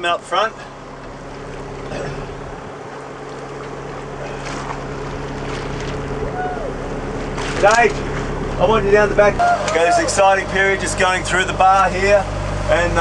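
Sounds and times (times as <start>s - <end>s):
boat engine droning: 0.0s - 13.0s
wind and water rushing: 0.7s - 10.3s.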